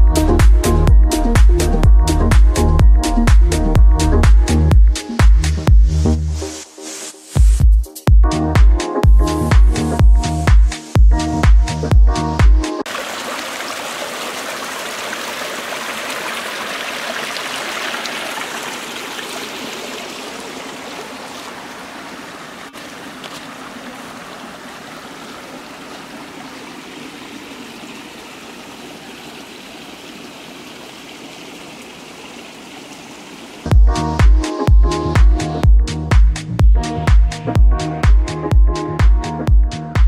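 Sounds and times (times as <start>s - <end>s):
stream rushing over stones: 12.9s - 34.4s.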